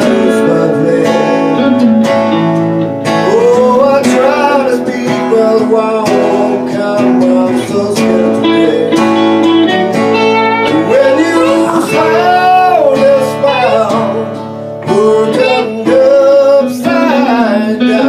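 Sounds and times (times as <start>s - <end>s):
electric guitar lead solo: 0.0s - 4.4s, 8.2s - 15.7s
strummed acoustic guitar: 0.0s - 18.0s.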